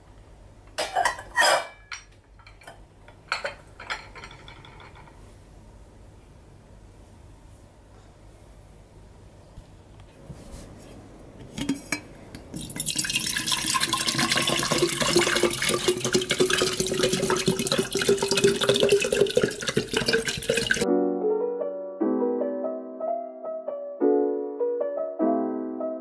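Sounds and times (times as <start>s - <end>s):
water pouring into glass jar: 12.5s - 20.8s.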